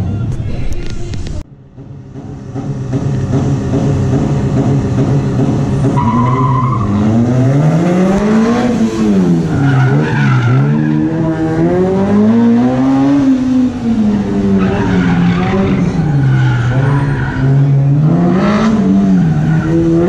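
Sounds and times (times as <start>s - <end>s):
car engine revving: 1.5s - 20.0s
tyre squeals: 5.8s - 7.3s, 14.5s - 17.8s.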